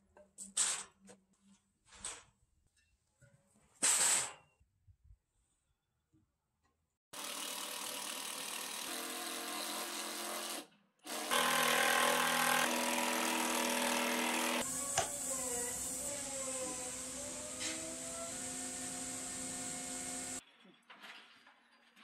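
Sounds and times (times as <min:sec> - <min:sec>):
cordless drill drilling into wood: 0:07.4 - 0:20.4.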